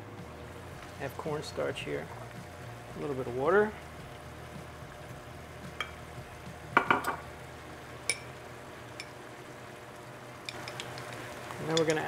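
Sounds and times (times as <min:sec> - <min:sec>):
sauce simmering and bubbling: 0:00.2 - 0:12.0
spoon clinking against glass bowl: 0:08.1 - 0:08.3, 0:11.7 - 0:12.0.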